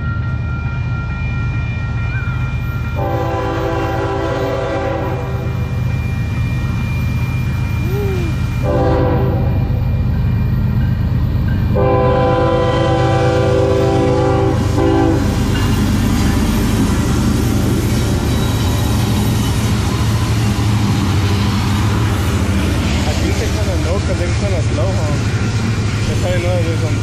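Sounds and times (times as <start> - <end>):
train rumbling past: 0.0 - 27.0
locomotive horn blasts: 3.0 - 5.6, 8.6 - 9.7, 11.8 - 15.3.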